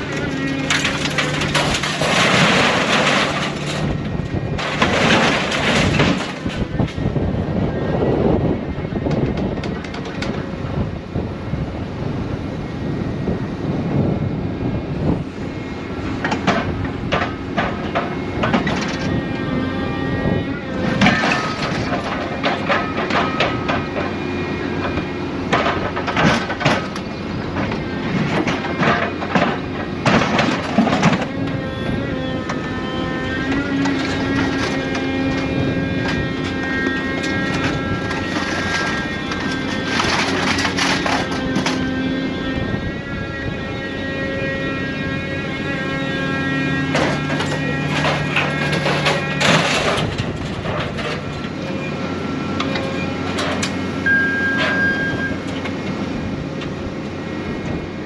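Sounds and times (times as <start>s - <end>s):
scrap metal crashing and rattling: 0.0s - 7.0s, 20.7s - 24.2s, 24.8s - 31.4s, 32.4s - 42.6s, 45.6s - 51.9s
machine engine and hydraulics running: 0.0s - 58.0s.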